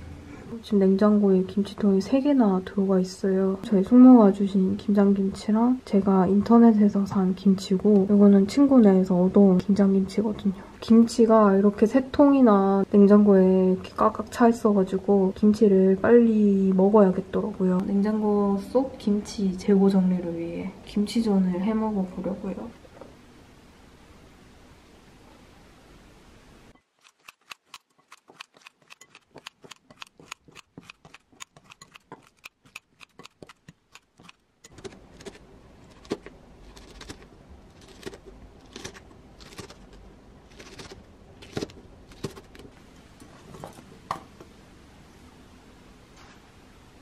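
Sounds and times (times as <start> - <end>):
crisp cutting clicks: 26.8 - 42.6.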